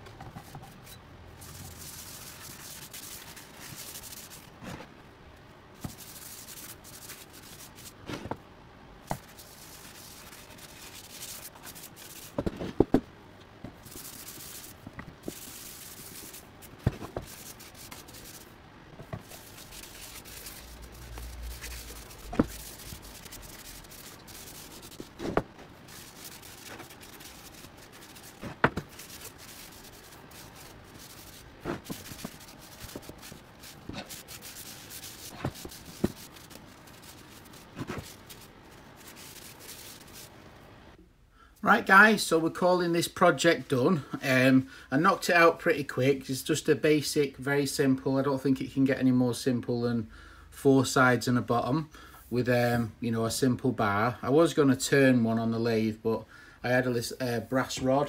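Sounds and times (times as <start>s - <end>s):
cloth wiping wood: 1.4s - 4.5s, 9.2s - 12.4s, 13.8s - 18.5s, 19.1s - 40.3s.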